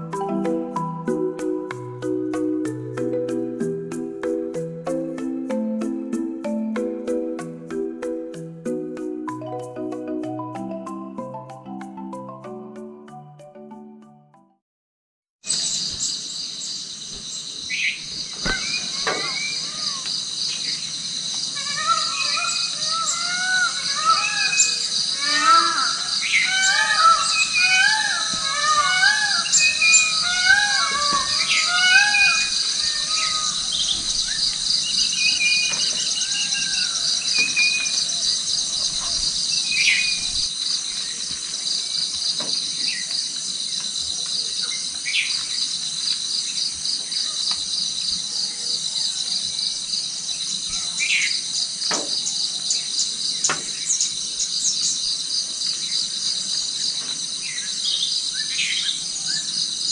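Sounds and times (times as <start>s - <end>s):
birds calling: 15.5s - 59.9s
shrill pulsing insect drone: 15.5s - 59.9s.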